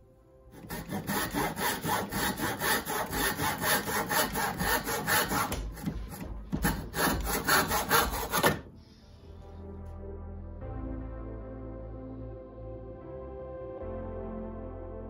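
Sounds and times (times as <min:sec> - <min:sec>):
hand saw cutting wood: 0:00.5 - 0:08.7.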